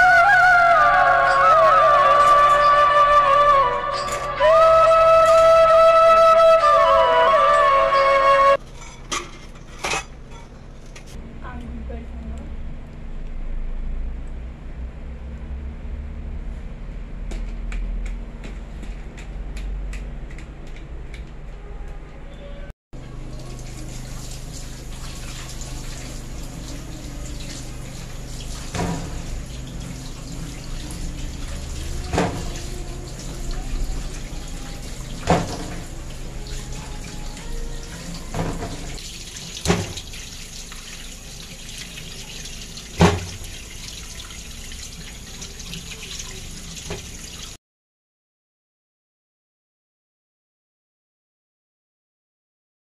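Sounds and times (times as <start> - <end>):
tap water running into sink: 23.0 - 47.6.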